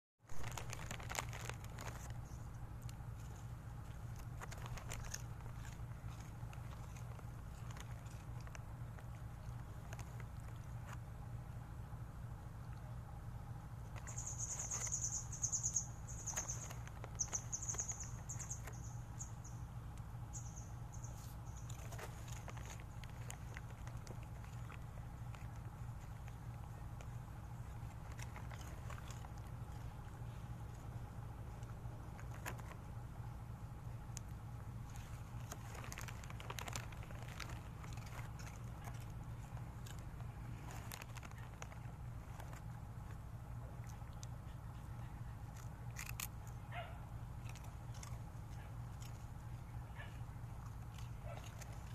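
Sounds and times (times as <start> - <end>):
dogs crunching snacks on gravel: 0.2 - 51.9
steady low hum: 0.2 - 51.9
high-pitched insect trilling: 14.0 - 16.6, 17.2 - 19.6.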